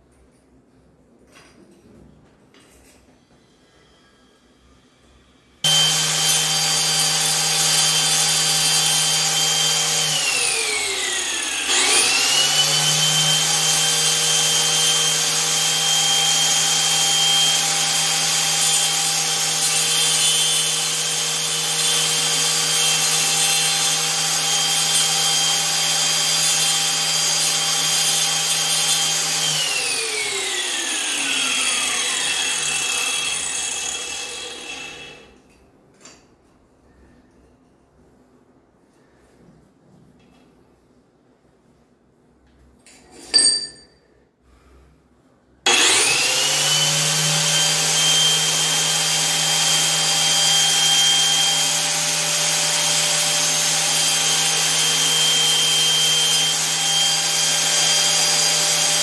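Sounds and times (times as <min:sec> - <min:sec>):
angle grinder whining: 0:05.6 - 0:35.4, 0:45.7 - 0:59.0.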